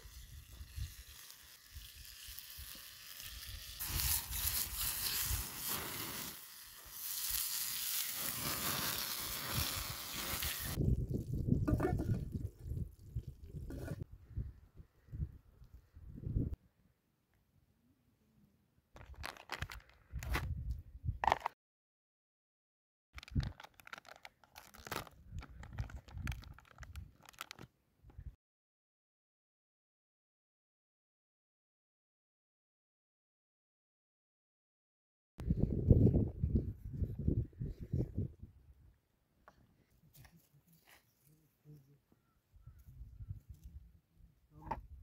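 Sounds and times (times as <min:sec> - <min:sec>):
meat sizzling in a pan: 0:00.0 - 0:10.8
plastic packet crinkling: 0:19.0 - 0:20.0, 0:23.2 - 0:27.7.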